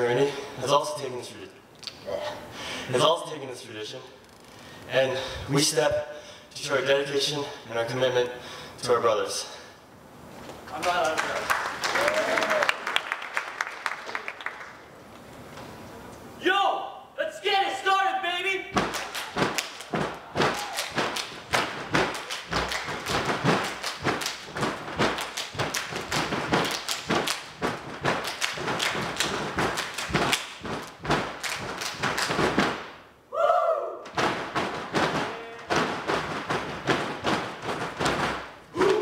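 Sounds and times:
rhythmic stomps on stage: 0:18.7 - 0:32.9, 0:34.1 - 0:38.6
hand claps and body slaps: 0:18.7 - 0:33.0, 0:34.0 - 0:39.0
person shouting: 0:20.3 - 0:20.8, 0:33.3 - 0:34.0, 0:38.8 - 0:39.0.

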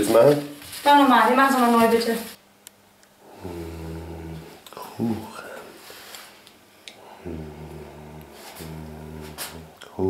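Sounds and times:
person humming on one pitch: 0:03.4 - 0:04.6, 0:07.1 - 0:09.8.

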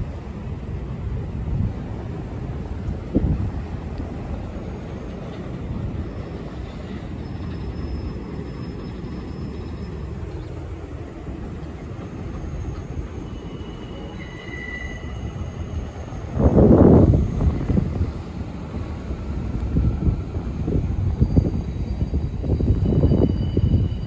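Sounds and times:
subway train rumbling on rails: 0:00.0 - 0:24.0
wheel squeals: 0:05.2 - 0:16.4, 0:20.6 - 0:24.0.

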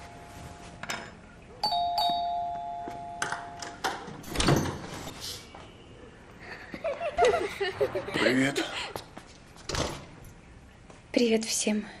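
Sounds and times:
door unlocking and opening: 0:03.2 - 0:05.0.

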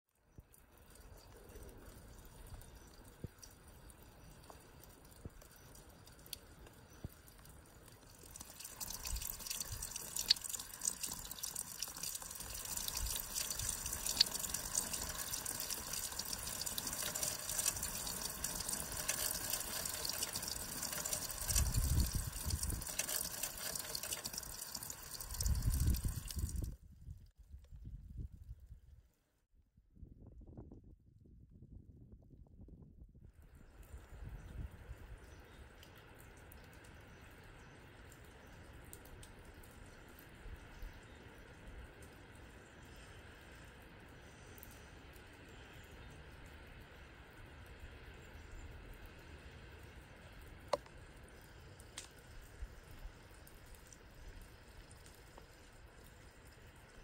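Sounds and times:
melting snow dripping: 0:00.1 - 0:26.8, 0:33.3 - 0:57.0
running water: 0:00.3 - 0:26.7.

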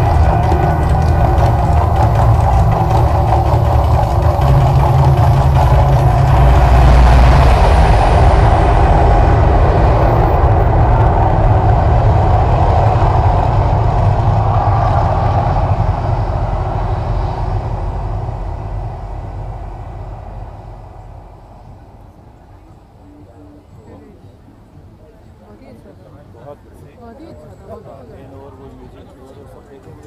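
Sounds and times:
deep rumble with rushing hiss: 0:00.0 - 0:23.8.

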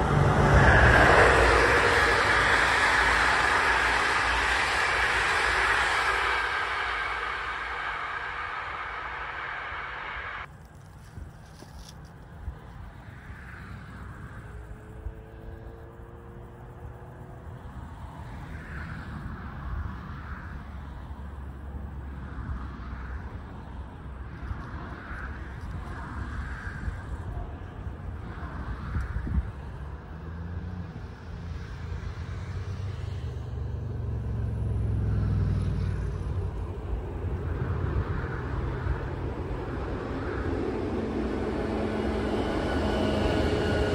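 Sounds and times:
passenger train rumble and hum: 0:00.0 - 0:43.9
wind rumbling on microphone: 0:00.0 - 0:43.9.

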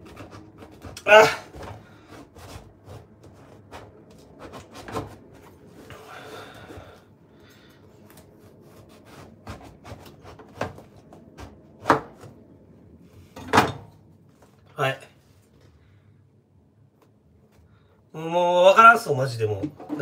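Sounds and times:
knife rasping through fruit rind: 0:00.0 - 0:05.2, 0:08.4 - 0:10.8.

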